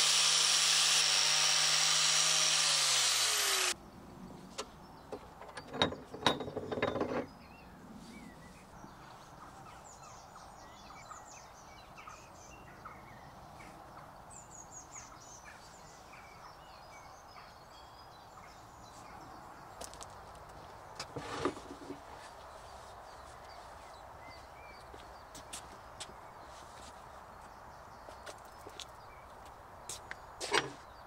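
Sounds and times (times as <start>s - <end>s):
birds chirping: 3.3s - 31.0s
tools set down on wooden table: 5.1s - 7.3s
metal clanking and knocking: 5.3s - 7.3s.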